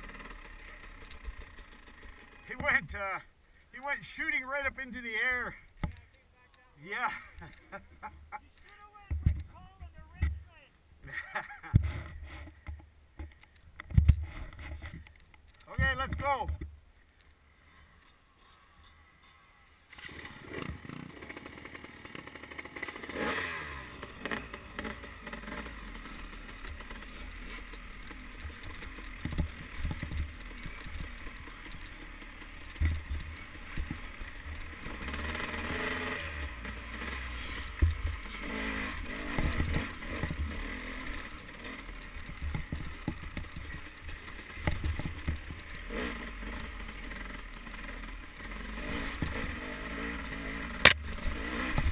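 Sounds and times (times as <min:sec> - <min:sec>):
dirt bike engine revving: 0:00.0 - 0:03.0, 0:17.6 - 0:51.9
knocks from bumps: 0:28.4 - 0:31.8.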